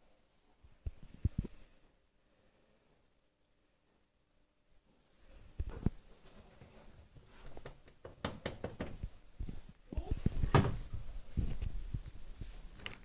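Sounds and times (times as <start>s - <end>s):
knocks and thuds on door: 7.7s - 9.0s, 10.4s - 10.8s.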